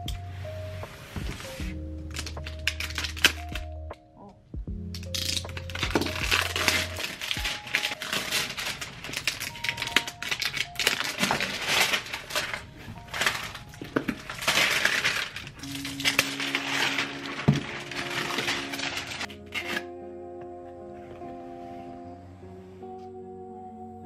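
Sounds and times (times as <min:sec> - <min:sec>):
soft background music: 0:00.0 - 0:24.0
plastic shrink-wrap crackling: 0:02.1 - 0:03.7, 0:05.0 - 0:19.7.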